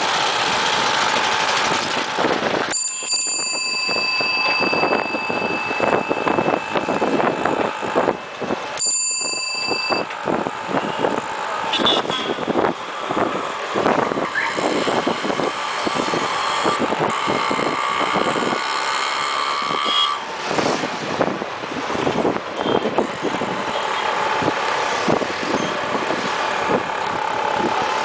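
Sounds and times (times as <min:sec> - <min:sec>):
vehicle engines passing: 0:10.0 - 0:28.0.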